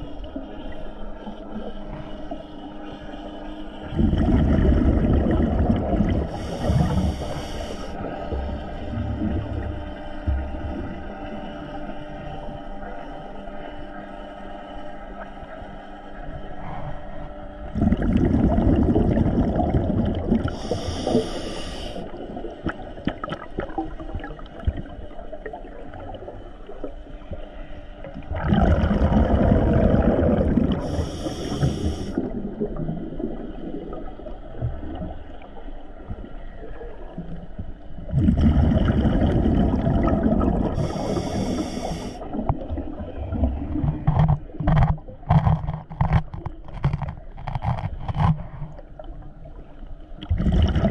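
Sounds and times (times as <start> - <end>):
exhale bubbling rumble: 3.8 - 12.3, 16.6 - 27.4, 28.0 - 47.3, 47.9 - 50.9
regulator hiss on inhale: 6.2 - 8.9, 20.5 - 22.2, 30.7 - 32.3, 40.7 - 42.4.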